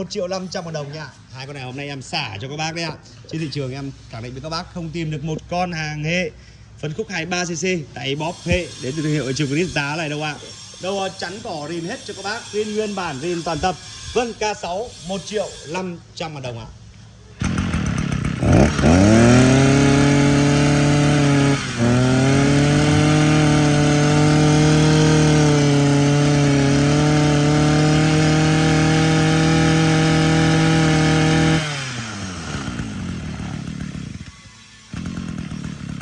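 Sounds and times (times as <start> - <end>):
brush cutter engine running: 17.4 - 36.0.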